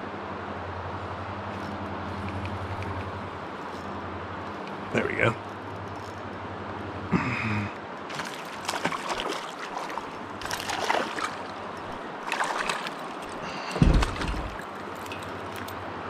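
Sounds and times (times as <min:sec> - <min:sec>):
water splashing: 0:08.1 - 0:15.0
heavy low thump: 0:13.8 - 0:14.6.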